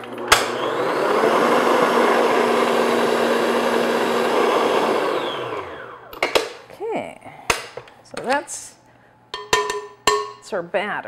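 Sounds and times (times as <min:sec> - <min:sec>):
stand mixer motor whirring: 0:00.0 - 0:06.1.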